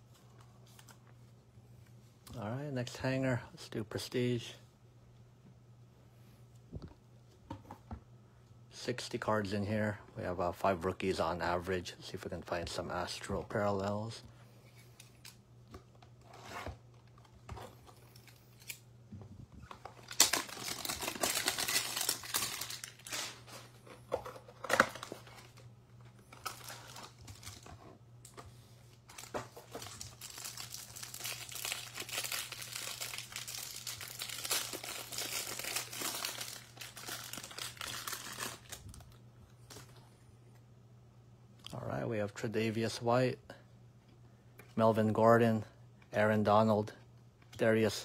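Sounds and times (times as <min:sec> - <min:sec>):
packaging crinkling: 0:19.6 - 0:23.6, 0:26.2 - 0:27.7, 0:29.0 - 0:39.9.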